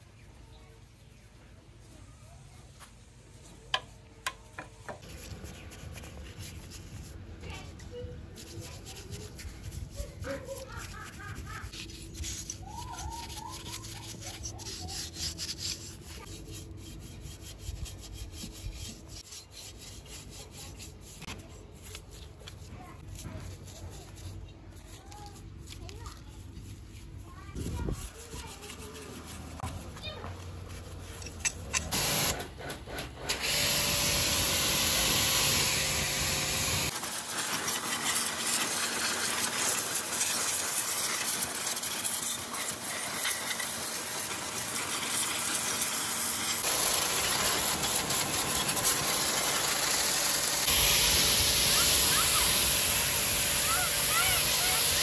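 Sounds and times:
spray hissing: 0:46.6 - 0:55.0.

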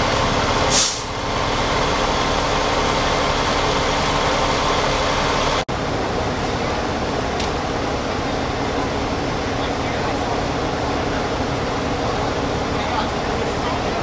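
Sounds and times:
vehicle engines idling: 0:00.0 - 0:14.0
short hiss: 0:00.7 - 0:01.1.

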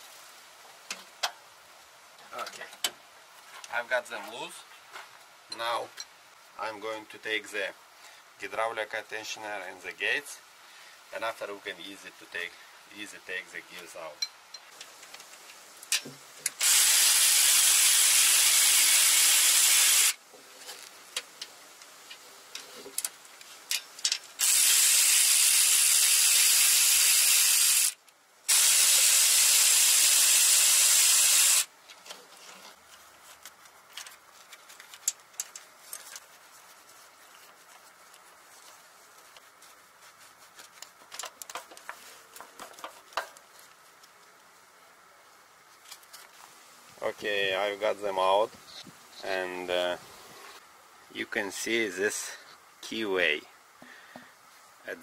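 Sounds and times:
pneumatic air ratchet: 0:16.5 - 0:20.2, 0:24.4 - 0:31.7.

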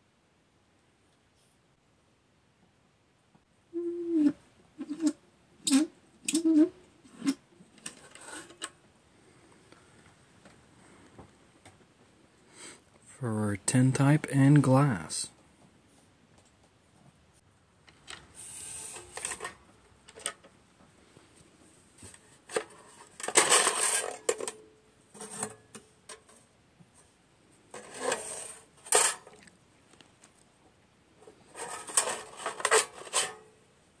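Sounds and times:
metallic rattling and scraping: 0:07.1 - 0:08.8, 0:22.5 - 0:26.4, 0:27.7 - 0:29.4, 0:31.4 - 0:33.5.

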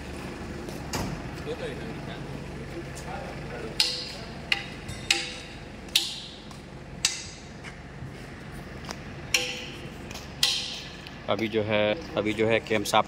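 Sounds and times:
steel bar knocking engine block: 0:03.7 - 0:06.4, 0:07.0 - 0:07.4, 0:09.3 - 0:09.8, 0:10.4 - 0:10.9.

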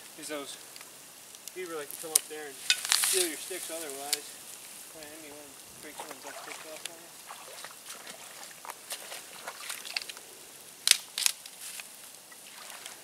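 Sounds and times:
dead sticks snapping: 0:10.8 - 0:11.6.

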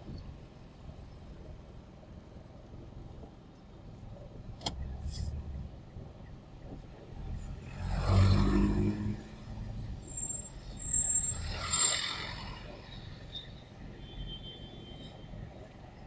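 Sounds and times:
low traffic rumble: 0:00.0 - 0:16.0
vehicle passing: 0:07.7 - 0:09.4.

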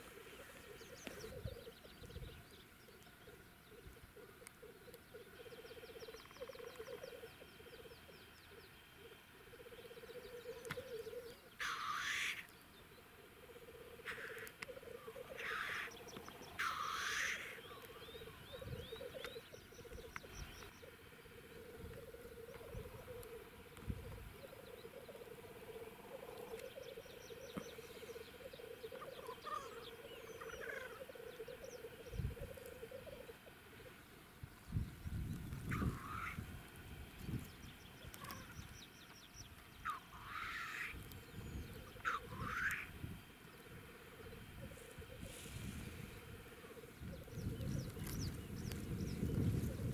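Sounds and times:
bird hissing chuff: 0:11.6 - 0:12.5, 0:16.6 - 0:17.6
grouse bubbling burble: 0:13.3 - 0:34.1, 0:34.7 - 0:38.6, 0:39.8 - 0:49.9
bird chirps: 0:14.0 - 0:34.0.

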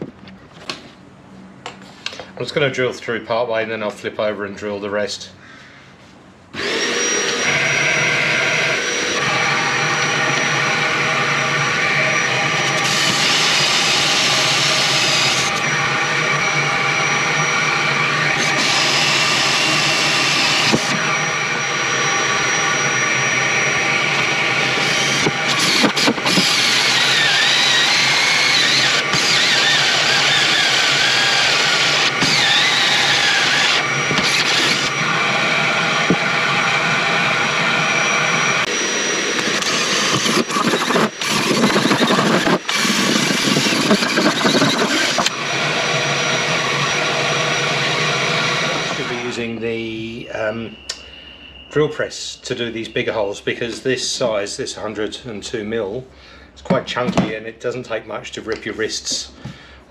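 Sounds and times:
cordless drill motor whine: 0:06.5 - 0:51.8
hole saw cutting wood: 0:06.6 - 0:49.6.

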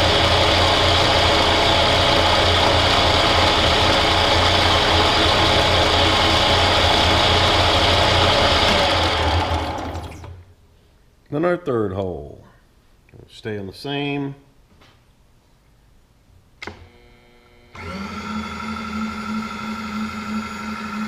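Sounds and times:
milling machine drilling plastic: 0:00.0 - 0:10.4.

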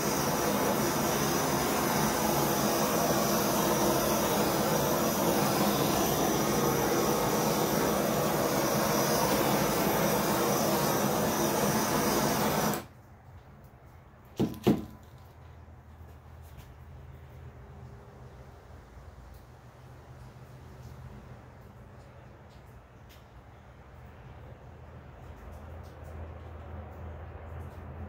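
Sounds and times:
propane torch hissing: 0:00.0 - 0:12.9
torch knocking on table: 0:14.4 - 0:15.1.

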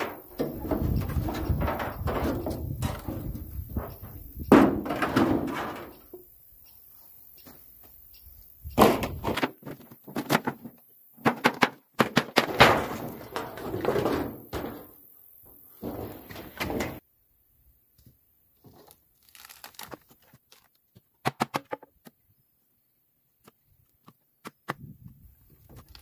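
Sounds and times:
sharp wooden knocks: 0:00.0 - 0:05.9
wooden boards knocking and clattering: 0:00.0 - 0:06.2, 0:08.8 - 0:15.0, 0:15.7 - 0:17.0.

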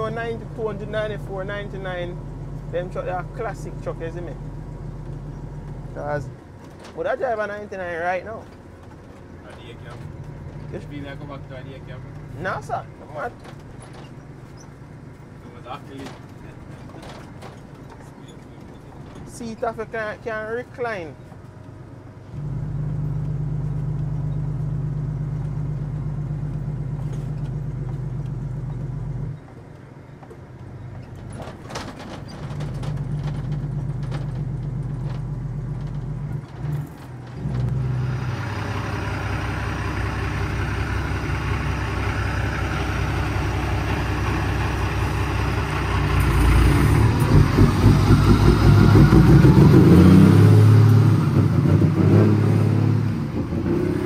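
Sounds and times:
truck diesel engine running: 0:00.0 - 0:53.7.

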